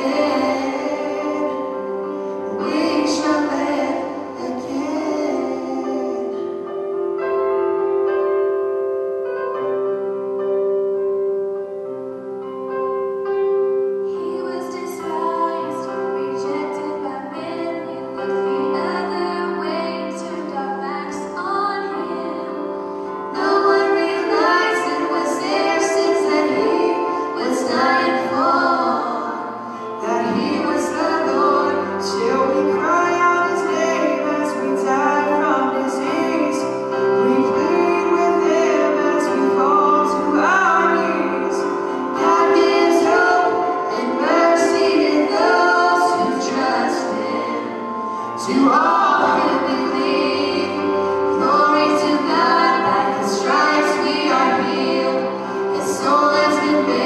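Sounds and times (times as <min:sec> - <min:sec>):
held accompaniment chords: 0:00.0 - 0:57.0
vibrato singing voice: 0:23.3 - 0:57.0.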